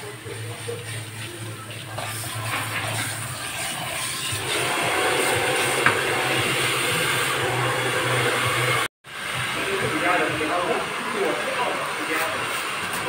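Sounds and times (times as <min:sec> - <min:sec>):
water spraying on hair: 0:00.0 - 0:13.0.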